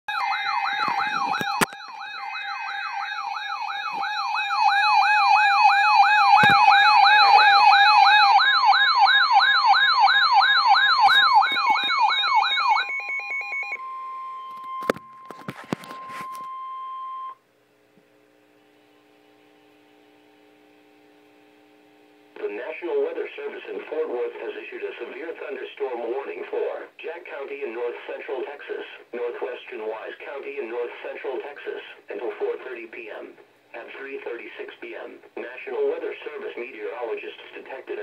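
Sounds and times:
steady alarm tone: 0.1 - 17.4
warbling siren: 0.1 - 17.4.

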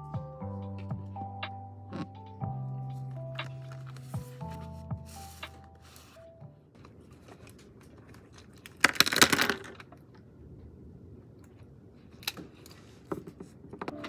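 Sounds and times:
small hard objects clattering: 8.2 - 9.9.

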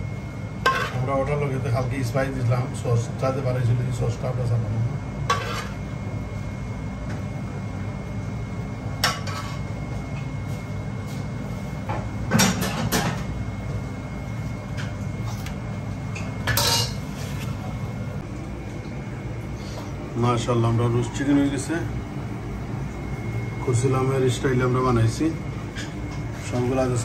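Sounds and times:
steady low hum: 0.0 - 27.0
cutlery clinking on steel dishes: 16.5 - 17.0.

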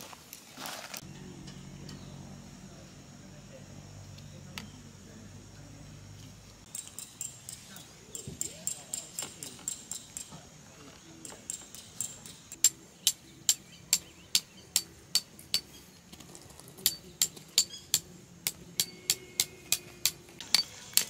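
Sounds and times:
hammer striking metal peg: 6.7 - 10.4, 11.2 - 15.8, 16.8 - 21.0.

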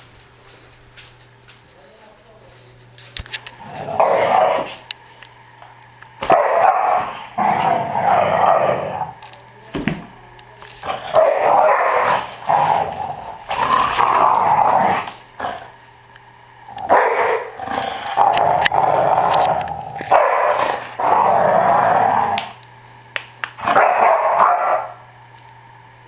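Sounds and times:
dog growling in play: 3.5 - 4.8, 6.3 - 9.2, 10.8 - 15.8, 16.7 - 22.6.

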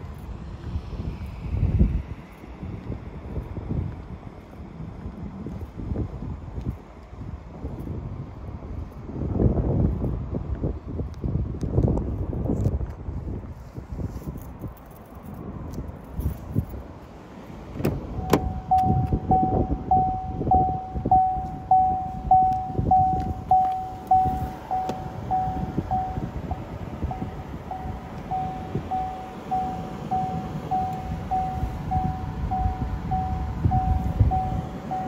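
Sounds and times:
low rumbling handling noise: 14.3 - 35.0
car warning chime: 18.2 - 35.0.

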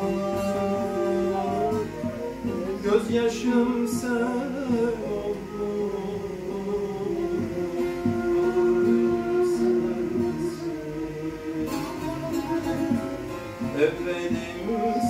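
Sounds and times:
long-necked lute folk melody: 0.0 - 15.0
man singing: 0.0 - 15.0.

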